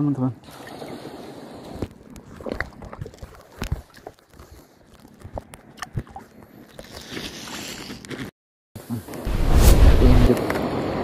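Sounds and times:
hands handling fish and lure: 1.8 - 8.3.

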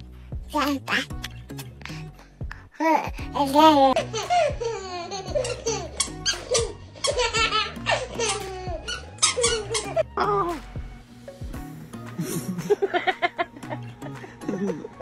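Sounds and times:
background music: 0.0 - 15.0
toddler giggling: 3.9 - 10.0.

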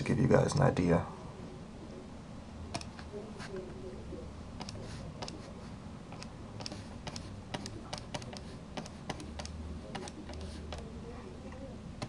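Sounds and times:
low steady hum: 0.0 - 12.0
stylus and keyboard clicks: 2.7 - 3.7, 4.6 - 5.5, 6.1 - 10.9.

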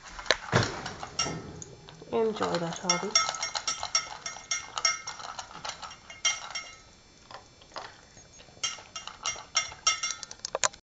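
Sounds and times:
puppy mouth clinking food bowl: 1.0 - 8.0, 8.6 - 10.4.

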